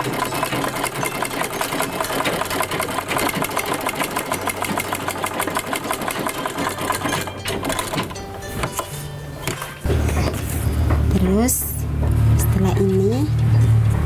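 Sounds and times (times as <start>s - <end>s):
sewing machine clattering: 0.0s - 10.5s.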